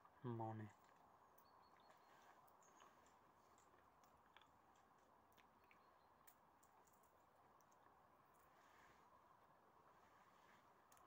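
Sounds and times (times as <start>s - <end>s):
faint outdoor hiss: 0.0s - 11.0s.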